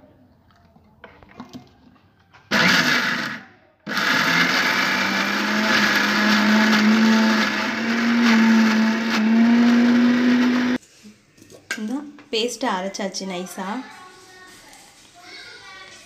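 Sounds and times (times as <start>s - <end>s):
mixer grinder motor running: 2.5s - 10.8s.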